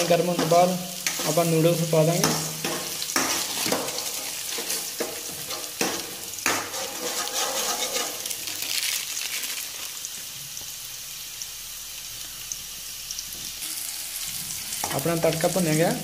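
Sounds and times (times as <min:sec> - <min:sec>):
cooking sizzling hiss: 0:00.0 - 0:16.0
noodles crinkling into a pot: 0:02.8 - 0:10.3.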